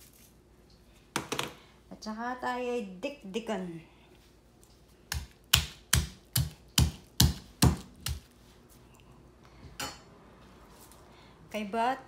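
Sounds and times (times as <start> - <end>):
stone pestle pounding in mortar: 5.1 - 8.2.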